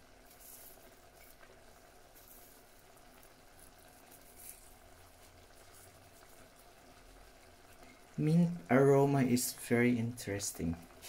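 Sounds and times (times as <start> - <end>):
sauce bubbling with soft pops: 0.0 - 8.2.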